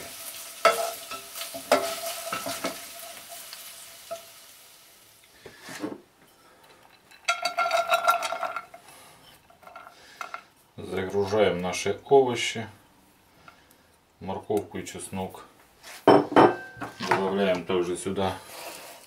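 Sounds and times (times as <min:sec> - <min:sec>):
oil sizzling in a pan: 0:00.0 - 0:05.7
utensil clinking against pot: 0:06.8 - 0:08.8.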